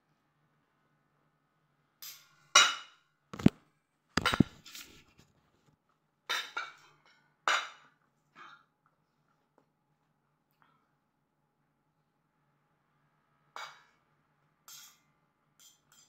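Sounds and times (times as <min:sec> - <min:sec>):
cutlery clinking on plate: 0:14.7 - 0:16.0.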